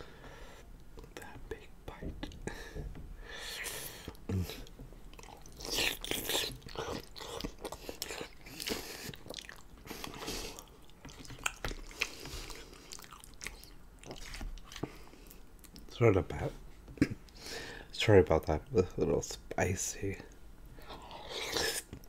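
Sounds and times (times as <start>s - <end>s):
person chewing wetly: 4.4s - 15.9s.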